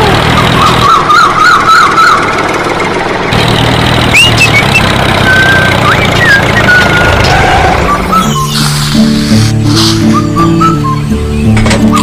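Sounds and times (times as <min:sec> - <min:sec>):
tractor engine running: 0:00.0 - 0:12.0
short rising whistles: 0:07.8 - 0:11.0
warbling whistle: 0:07.8 - 0:11.0.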